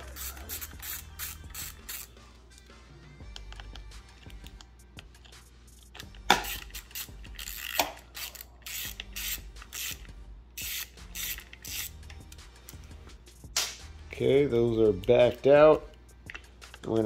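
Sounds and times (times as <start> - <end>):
screwdriver rasping ratchet strokes: 0.0 - 2.2, 5.2 - 12.4.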